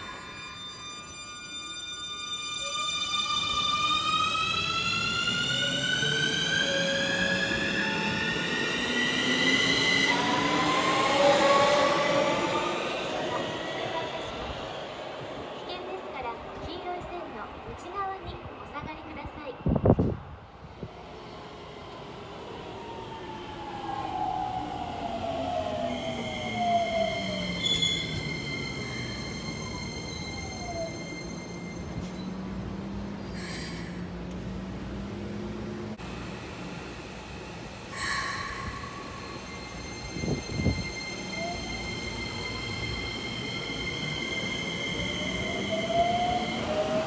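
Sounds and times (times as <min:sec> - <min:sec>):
high wheel squeal: 0:25.9 - 0:32.4, 0:38.0 - 0:46.8.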